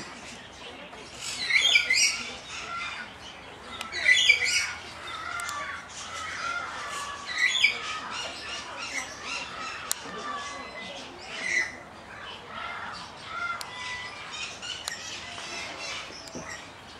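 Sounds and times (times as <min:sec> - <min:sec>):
parrots squawking: 0:03.8 - 0:16.7.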